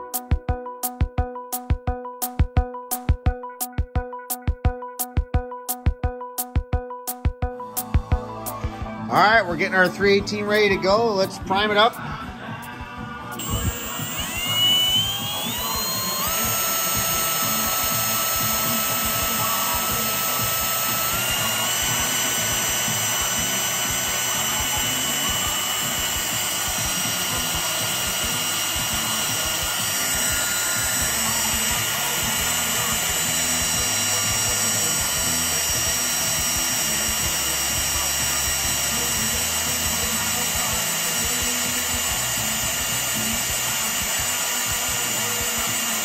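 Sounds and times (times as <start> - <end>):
electric drill whining: 13.3 - 46.0.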